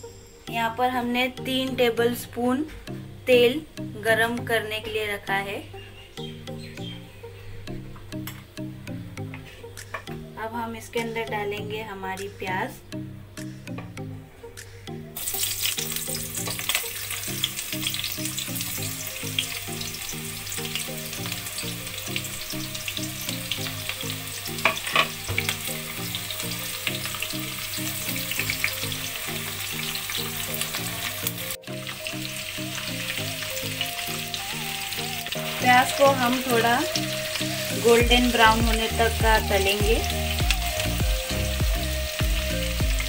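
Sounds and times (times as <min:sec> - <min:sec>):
onions sizzling in hot oil: 0:15.2 - 0:43.0.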